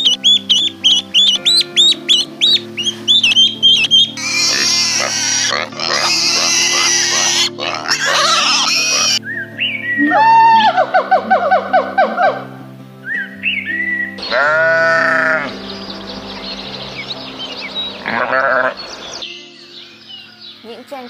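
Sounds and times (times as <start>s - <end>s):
ducklings peeping: 0.0s - 9.2s
piglets squealing: 0.0s - 9.2s, 14.2s - 15.6s, 18.0s - 18.8s
background music: 0.0s - 21.0s.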